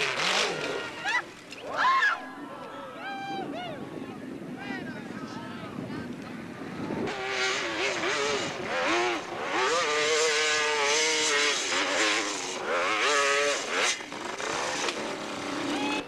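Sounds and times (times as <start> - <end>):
dirt bike engine revving: 0.0 - 1.2, 6.9 - 16.0.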